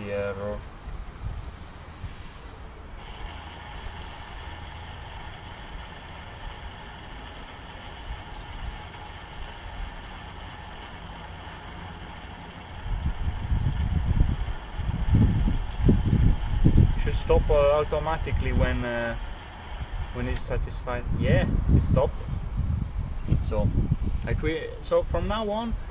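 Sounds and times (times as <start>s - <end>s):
electric gear motor whining: 3.0s - 20.6s
low rumble: 3.0s - 24.3s.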